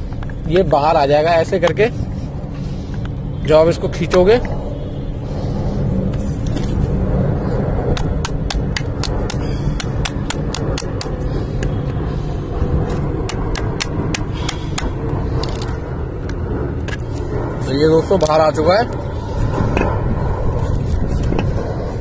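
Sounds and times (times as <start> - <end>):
steady low rumble: 0.0 - 22.0
pliers tapping on fan motor: 7.9 - 11.7, 12.9 - 17.0.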